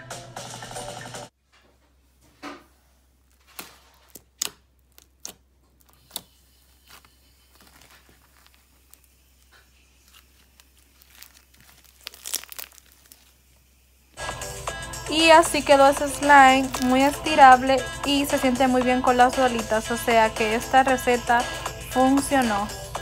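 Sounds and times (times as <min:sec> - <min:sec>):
crunchy slime crackling: 0:03.2 - 0:14.2, 0:15.4 - 0:17.4.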